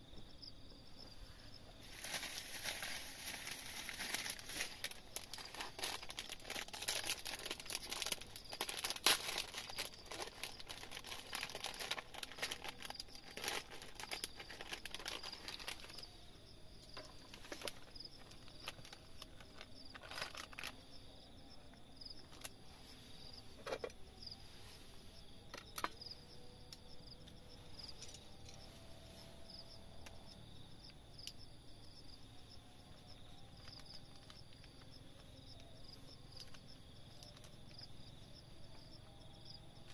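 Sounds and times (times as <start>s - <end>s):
insects chirping: 0.0s - 39.9s
plastic packaging crinkling: 1.8s - 16.2s, 16.9s - 20.8s.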